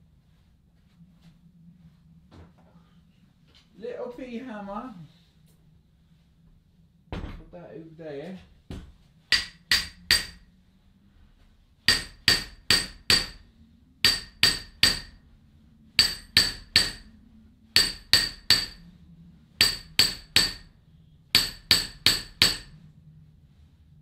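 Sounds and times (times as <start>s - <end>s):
hammer tapping on steel gear: 9.3s - 10.4s, 11.9s - 13.4s, 14.0s - 15.2s, 16.0s - 17.1s, 17.8s - 18.8s, 19.6s - 20.7s, 21.4s - 22.7s.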